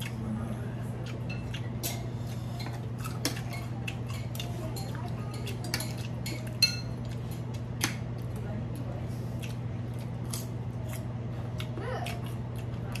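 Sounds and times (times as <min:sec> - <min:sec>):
steady low hum: 0:00.0 - 0:13.0
cutlery clinking on plates: 0:01.3 - 0:07.2.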